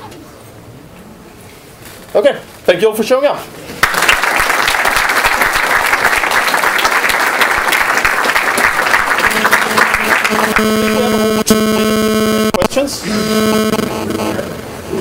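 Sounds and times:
audience clapping: 0:03.8 - 0:11.4
steady buzz: 0:08.4 - 0:15.0.

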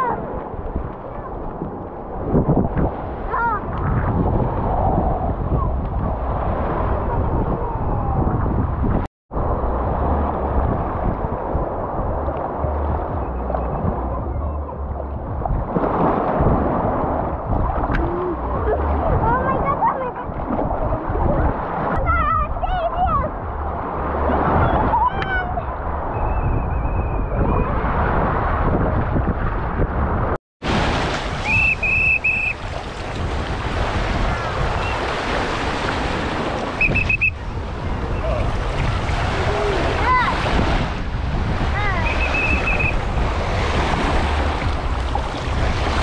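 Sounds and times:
wind buffeting microphone: 0:00.0 - 0:46.0
small waves washing on shore: 0:30.6 - 0:46.0
water lapping on sand: 0:30.6 - 0:46.0.

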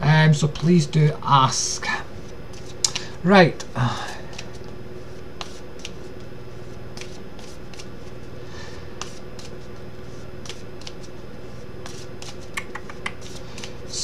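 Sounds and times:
low electrical hum: 0:00.0 - 0:14.0
keyboard and mouse clicks: 0:12.5 - 0:13.2.

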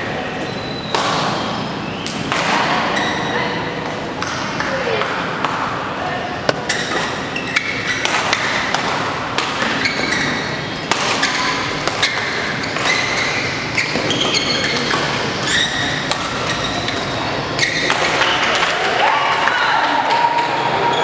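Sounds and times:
shoes squeaking on court: 0:00.4 - 0:02.2, 0:02.9 - 0:03.7, 0:06.6 - 0:08.5, 0:09.6 - 0:18.4
racket hitting shuttlecock: 0:00.9 - 0:01.4, 0:02.0 - 0:03.0, 0:06.5 - 0:18.8.

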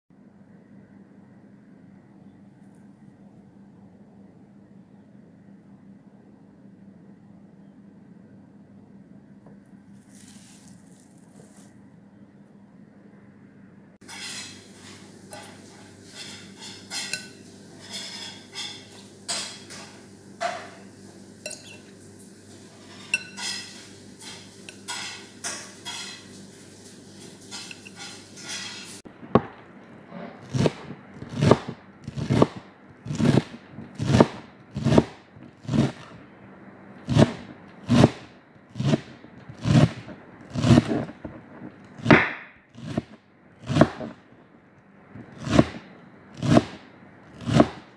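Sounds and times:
utensil scraping in bowl: 0:10.0 - 0:11.8, 0:14.0 - 0:19.8, 0:22.6 - 0:29.1, 0:30.1 - 0:36.1, 0:37.1 - 0:41.2, 0:42.8 - 0:44.2
knife chopping on plastic board: 0:30.4 - 0:36.0, 0:37.1 - 0:38.2, 0:42.0 - 0:44.1, 0:45.4 - 0:45.8, 0:46.4 - 0:46.8, 0:47.4 - 0:47.9.

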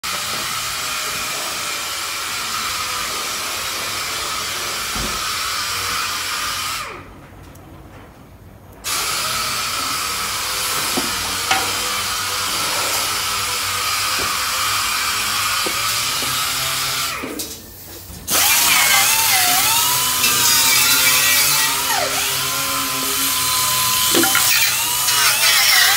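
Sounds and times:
pneumatic tool hissing: 0:08.9 - 0:25.9.

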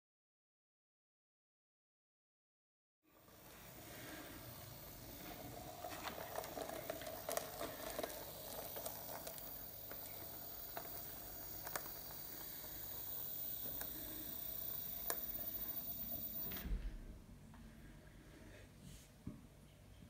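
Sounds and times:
model train humming: 0:03.2 - 0:16.6
wheels clicking on rails: 0:03.4 - 0:16.5.

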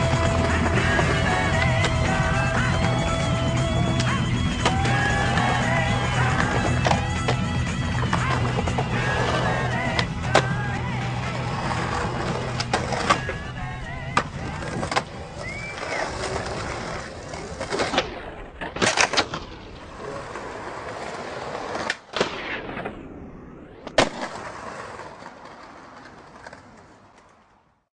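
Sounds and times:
skateboard clacks: 0:00.0 - 0:19.5
skateboard wheels rolling on concrete: 0:00.0 - 0:27.9.

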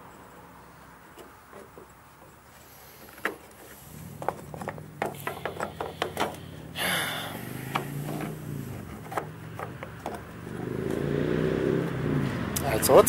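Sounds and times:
knocks of small parts: 0:04.2 - 0:06.5.

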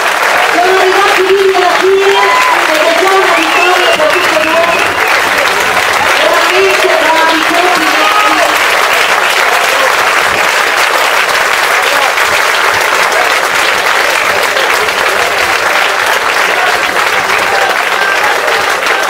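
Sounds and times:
crowd applauding: 0:00.0 - 0:19.0
voices calling out: 0:00.6 - 0:08.6.

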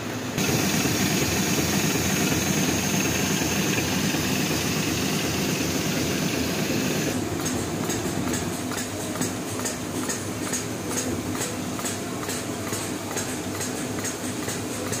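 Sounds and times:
machine hum: 0:00.1 - 0:07.3
machine ticking: 0:00.4 - 0:07.2.

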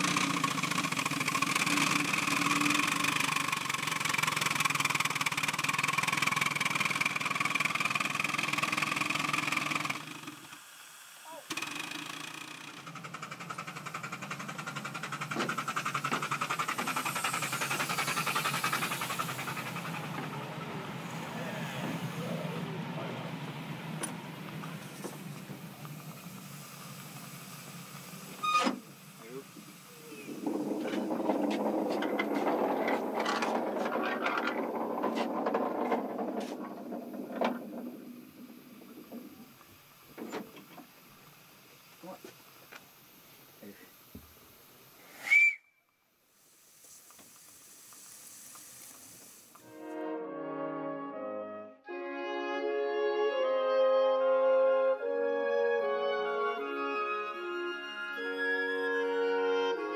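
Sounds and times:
steam locomotive puffing: 0:00.0 - 0:45.6, 0:46.2 - 0:50.0
metal turntable grinding squeal: 0:28.3 - 0:28.8, 0:30.1 - 0:40.5
small knocks: 0:30.3 - 0:40.9.

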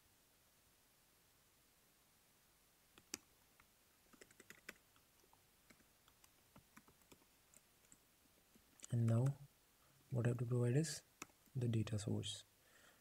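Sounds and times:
computer keyboard typing: 0:03.0 - 0:03.3, 0:04.1 - 0:08.0.

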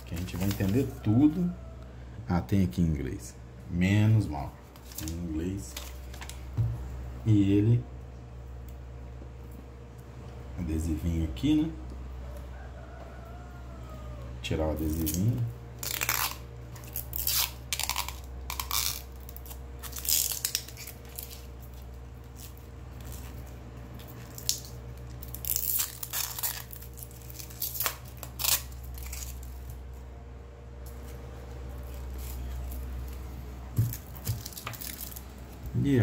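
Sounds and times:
plastic film peeling and crinkling: 0:00.0 - 0:01.0, 0:04.7 - 0:06.5, 0:14.9 - 0:30.0, 0:30.9 - 0:35.7.

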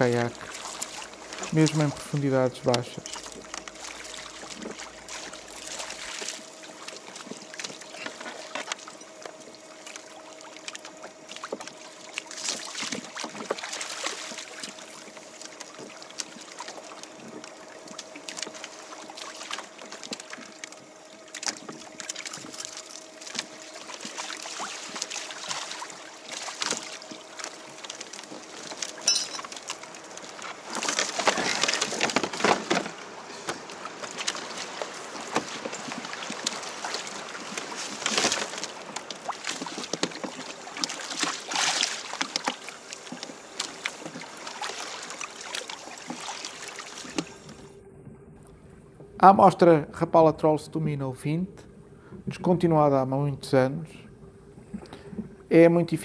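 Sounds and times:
water splashing against kayak hull: 0:00.0 - 0:47.8
rush of water and wind: 0:15.7 - 0:47.6.

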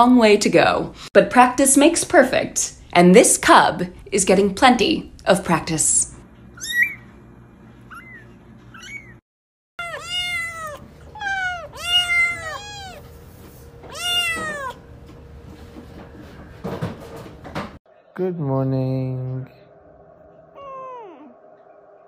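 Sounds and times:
kittens meowing: 0:07.9 - 0:09.2, 0:09.8 - 0:13.1, 0:13.8 - 0:14.8.

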